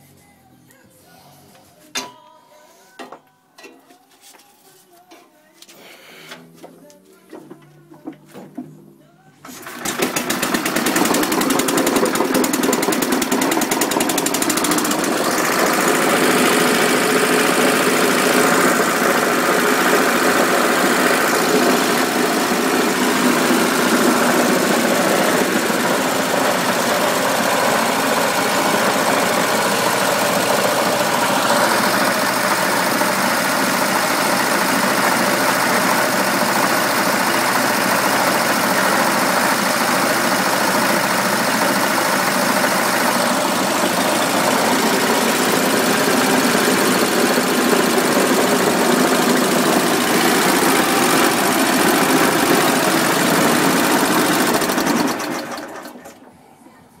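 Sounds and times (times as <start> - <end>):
stationary engine running: 9.6 - 56.2.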